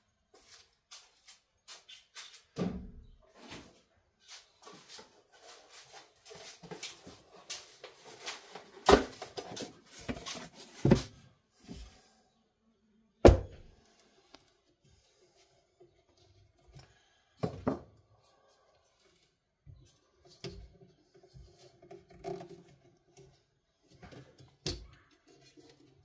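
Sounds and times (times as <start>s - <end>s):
cardboard rustling: 4.7s - 11.2s.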